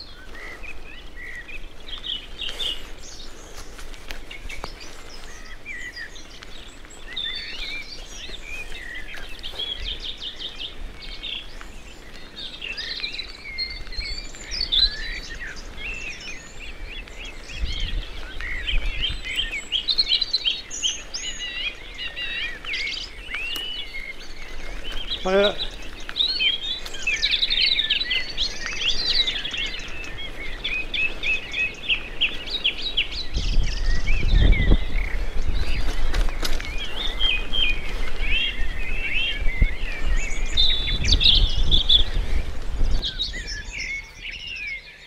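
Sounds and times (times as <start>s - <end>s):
songbirds singing: 0.0s - 45.0s.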